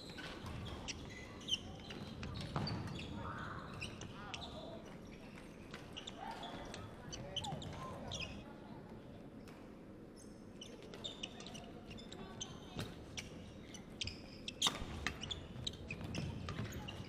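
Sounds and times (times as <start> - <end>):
shoes squeaking on wooden floor: 13.6 - 17.0.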